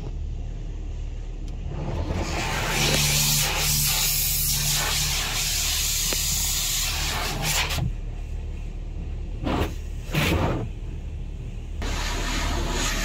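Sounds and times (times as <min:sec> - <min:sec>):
low steady hum: 0:00.0 - 0:13.0
water jets spraying windscreen: 0:01.6 - 0:10.8, 0:11.8 - 0:13.0.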